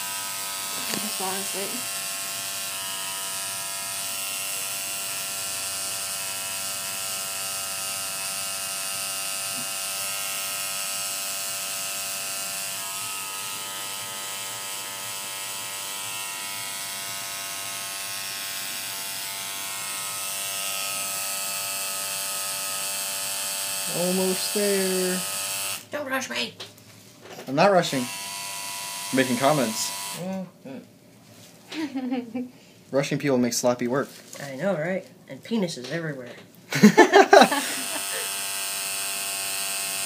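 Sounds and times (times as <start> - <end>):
tattoo machine buzzing: 0.0 - 25.9, 27.8 - 30.4, 37.3 - 40.0.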